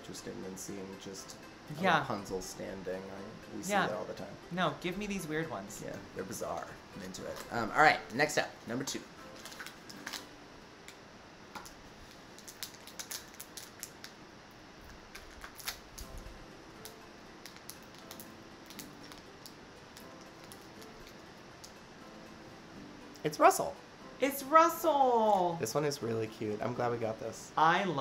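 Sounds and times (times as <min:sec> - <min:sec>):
package being opened by hand: 0:09.3 - 0:10.3, 0:11.6 - 0:14.2, 0:14.8 - 0:16.2, 0:16.8 - 0:21.2.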